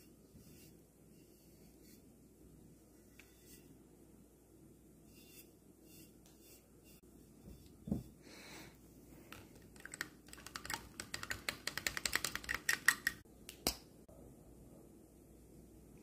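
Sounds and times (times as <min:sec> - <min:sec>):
paintbrush clicking in plastic cup: 0:09.6 - 0:13.2.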